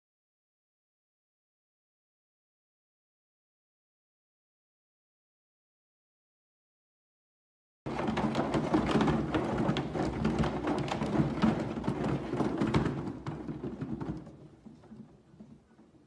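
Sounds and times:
cat paws tapping and thumping: 7.9 - 16.0
exercise wheel rumbling: 7.9 - 16.0.

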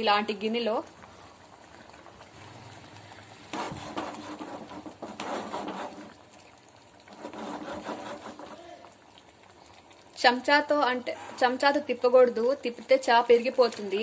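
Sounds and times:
pot scraping on burner: 3.2 - 6.2, 7.0 - 8.6.

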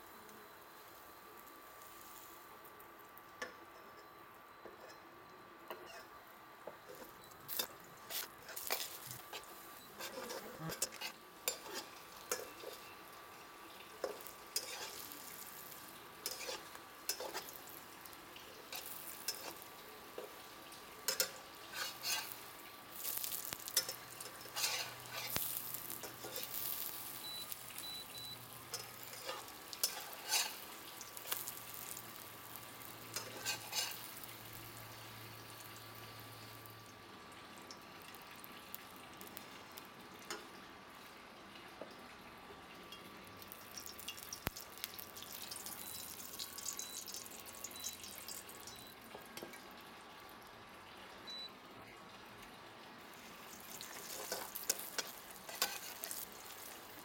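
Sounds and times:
bread sizzling in oil: 0.0 - 57.0
metal spatula scraping pan: 8.1 - 12.9, 14.0 - 15.1, 16.2 - 17.5, 21.1 - 22.4, 23.8 - 26.6, 28.7 - 30.7, 33.2 - 34.1, 53.9 - 56.3.

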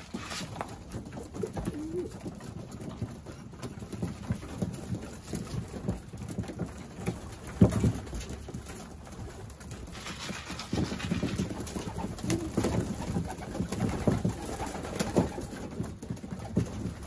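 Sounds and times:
pecking and shuffling at feeder: 0.0 - 17.0
pigeons cooing: 0.1 - 2.4, 11.0 - 15.6.

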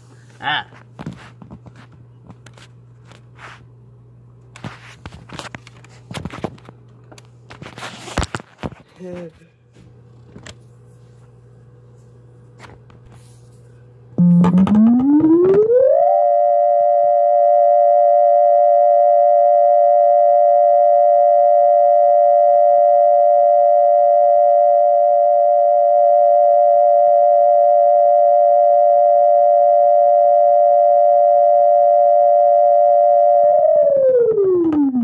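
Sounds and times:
electronic keyboard siren wail: 14.2 - 35.0.

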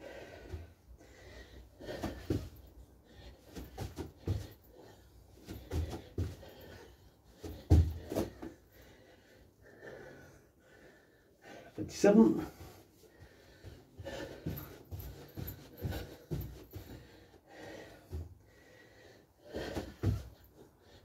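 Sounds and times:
hard breathing: 0.0 - 21.0
feet thudding on floor: 5.4 - 6.7, 7.4 - 8.6, 13.6 - 17.1.

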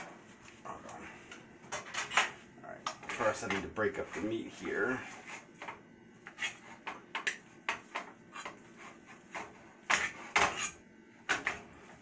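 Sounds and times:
utensil scraping and knocking pot: 2.9 - 11.7.

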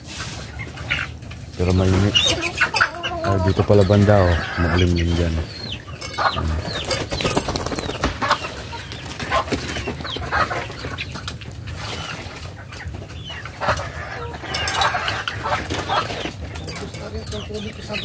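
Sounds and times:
chickens clucking: 0.0 - 18.0
bird flapping wings: 6.7 - 10.2.

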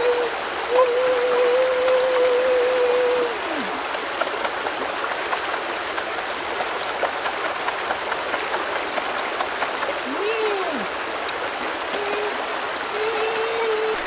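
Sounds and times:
stream water flowing: 0.0 - 14.0.

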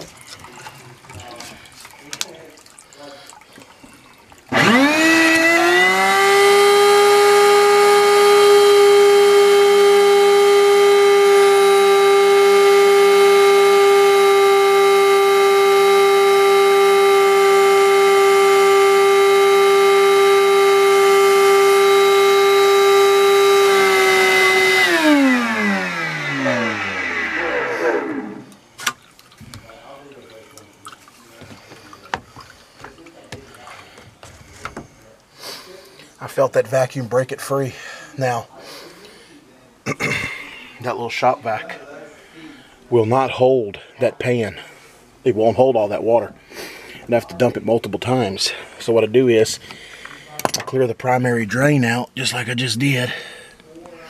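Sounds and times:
shop vac motor whining: 4.5 - 29.8.

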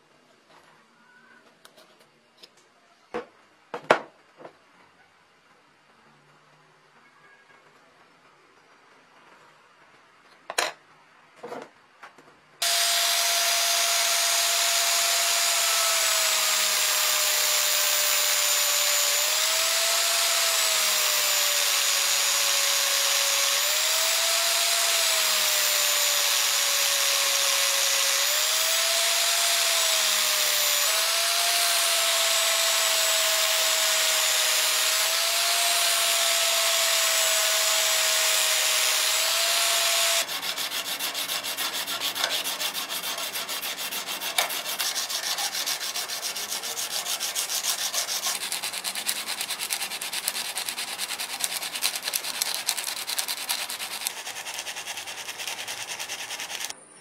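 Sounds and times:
hand sanding of blade: 12.6 - 56.7
power sander grinding steel: 12.6 - 56.8.

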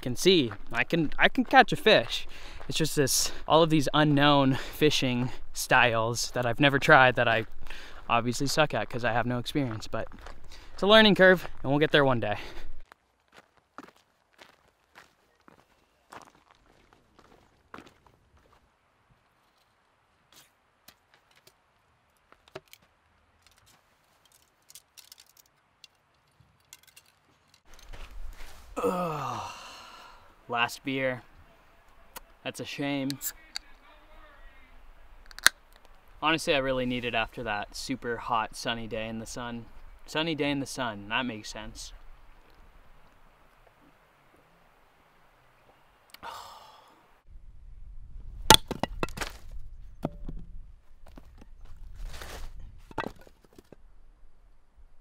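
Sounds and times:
split wood pieces clattering: 22.4 - 28.0
hatchet splitting firewood: 48.5 - 50.4.

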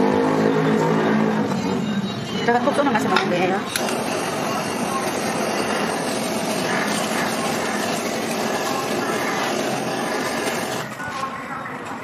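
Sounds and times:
gas torch rushing: 3.6 - 11.0.

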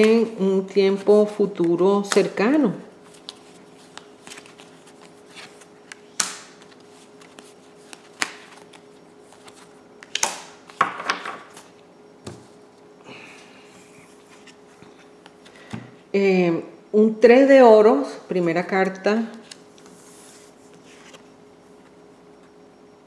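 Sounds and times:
faint steady hum: 0.0 - 23.0.

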